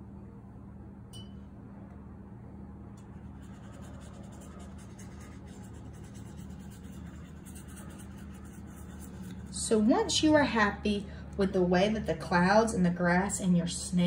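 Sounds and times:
steady low hum: 0.0 - 14.0
paintbrush dabbing on paper: 3.0 - 9.9.

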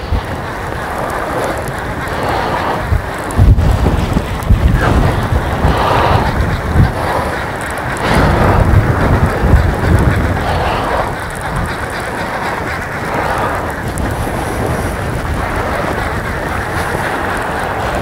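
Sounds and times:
wind buffeting microphone: 0.0 - 18.0.

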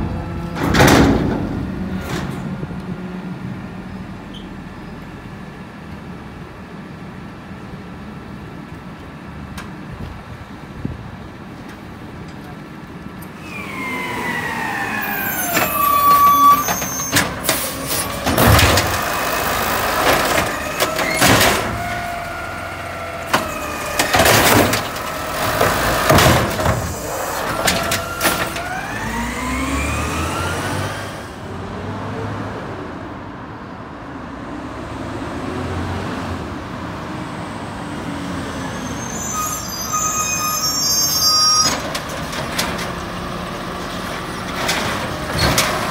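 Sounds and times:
cart banging against hopper: 0.0 - 2.6, 15.0 - 22.3, 23.2 - 28.8, 44.1 - 45.9
garbage truck engine and hydraulics: 0.0 - 45.9.

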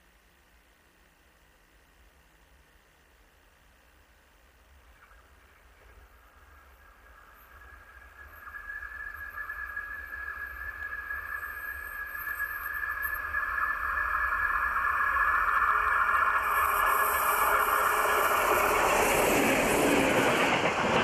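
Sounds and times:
high-pitched whine: 4.8 - 21.0
diesel locomotive approaching: 5.9 - 21.0.

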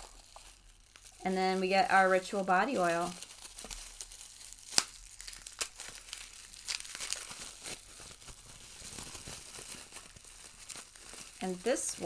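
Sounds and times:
bubble wrap crinkling: 0.0 - 12.0.

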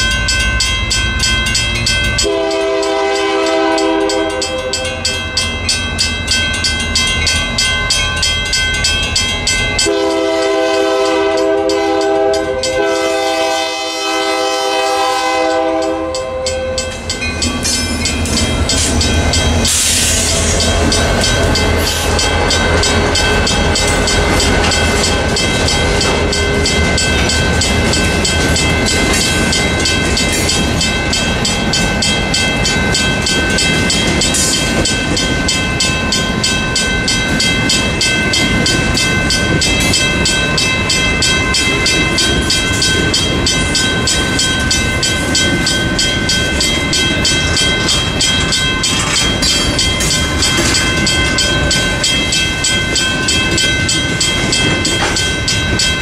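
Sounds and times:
crossing signal bell ringing: 0.0 - 56.0
train horn: 2.2 - 5.0, 9.9 - 16.8
locomotive engine rumbling: 15.0 - 56.0
train wheel clatter: 16.8 - 56.0.

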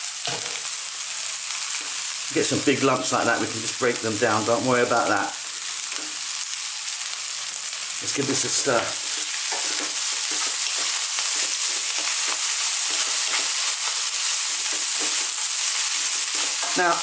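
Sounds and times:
rice sizzling in a frying pan: 0.0 - 17.0
wooden spatula scraping a pan: 8.8 - 17.0.

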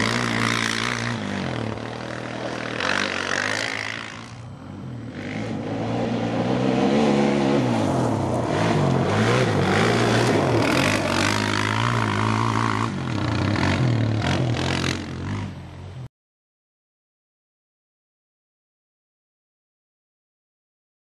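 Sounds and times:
quad engine revving: 0.0 - 15.6.

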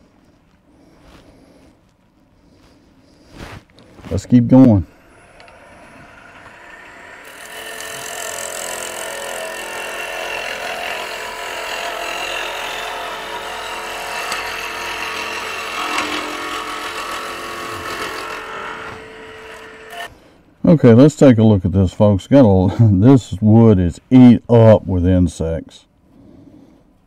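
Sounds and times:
wood lathe hum: 4.8 - 20.1
gouge rasping on wood: 6.2 - 20.1.

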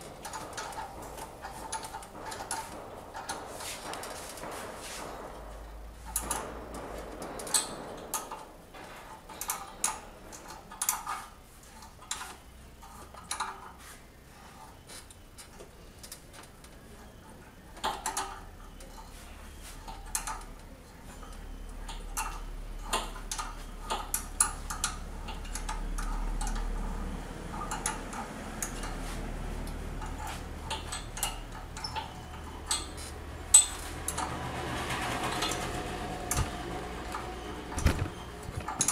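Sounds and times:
metal tools and parts clinking: 17.8 - 29.1, 30.0 - 34.3, 37.1 - 38.9.

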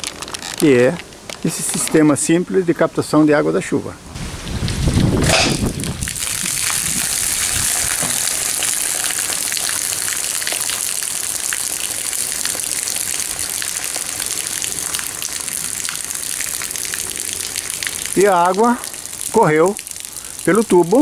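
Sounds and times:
water pouring from gutter pipe: 0.0 - 2.0, 4.4 - 21.0
water splashing: 4.4 - 21.0.

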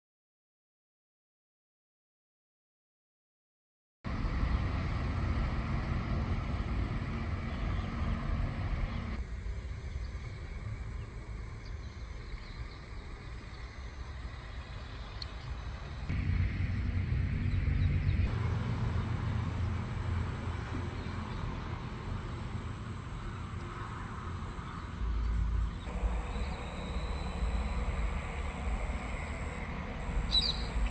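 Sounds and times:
heavy low rumble: 4.1 - 30.9.

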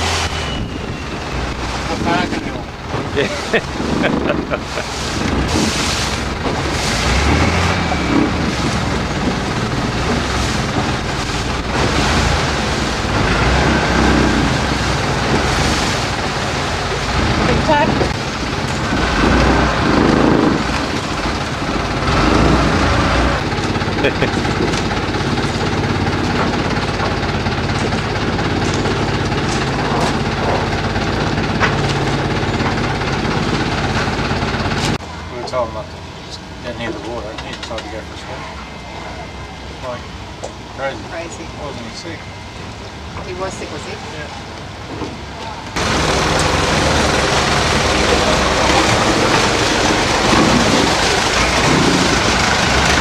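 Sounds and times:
engine running with rough pulsing: 0.0 - 53.0
rushing water: 0.0 - 53.0
wind buffeting microphone: 0.3 - 35.0.

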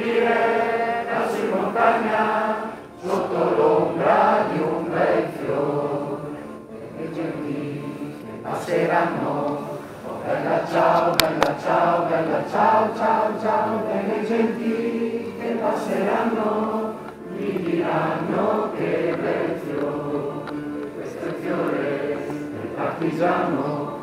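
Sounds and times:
crowd singing in chorus: 0.0 - 24.0
sharp clicks: 10.9 - 11.6.

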